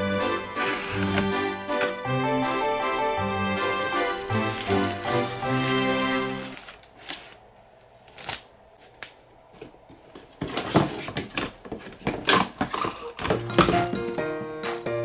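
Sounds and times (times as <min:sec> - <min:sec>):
hands rummaging in cardboard box: 0:00.2 - 0:01.4, 0:03.7 - 0:07.4.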